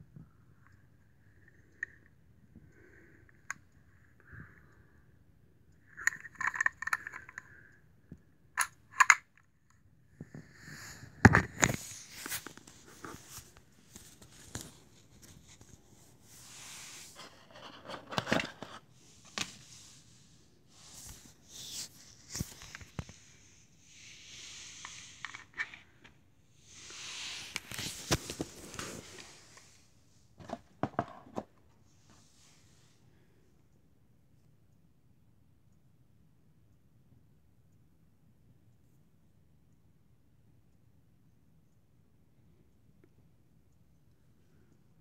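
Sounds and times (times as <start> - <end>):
clicks and knocks of handling: 6.0 - 7.7, 8.6 - 9.4.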